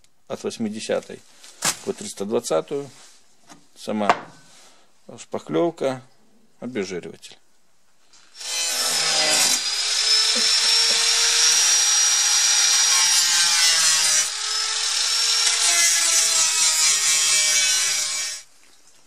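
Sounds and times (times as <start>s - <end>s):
angle grinder grinding metal: 8.2s - 18.5s.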